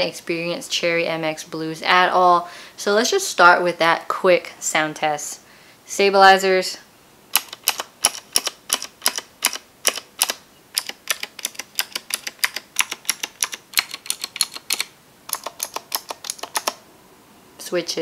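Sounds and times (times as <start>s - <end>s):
clicky keyboard keystrokes: 7.4s - 16.8s.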